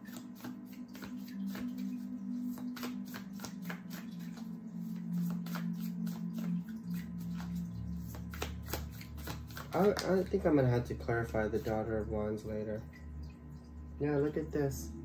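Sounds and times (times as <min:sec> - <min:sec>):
cards shuffling: 0:00.0 - 0:06.6, 0:07.2 - 0:10.5, 0:11.3 - 0:11.8
soft background music: 0:00.0 - 0:15.0.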